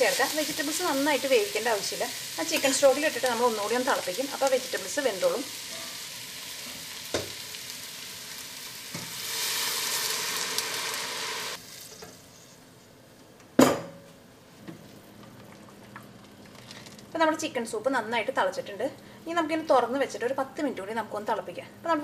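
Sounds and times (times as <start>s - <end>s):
food sizzling in butter: 0.0s - 12.6s.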